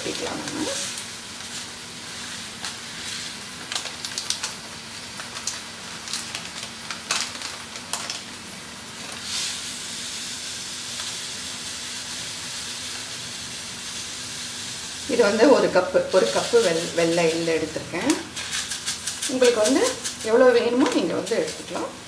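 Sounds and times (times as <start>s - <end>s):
gas burner hiss: 0.0s - 22.0s.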